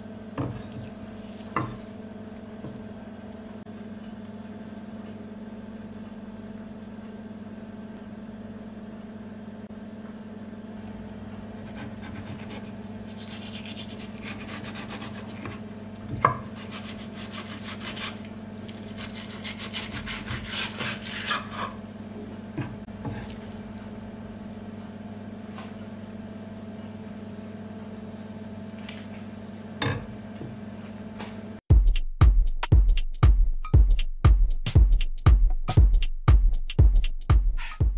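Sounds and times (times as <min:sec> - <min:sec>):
steady low hum: 0:00.0 - 0:30.9
knife scraping fish skin: 0:11.6 - 0:15.7, 0:16.4 - 0:21.8.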